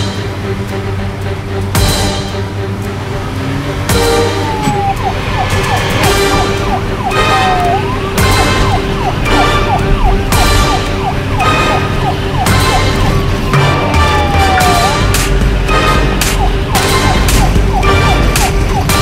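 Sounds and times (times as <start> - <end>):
background music with loud hits: 0.0 - 19.0
police siren wailing and yelping: 3.9 - 19.0.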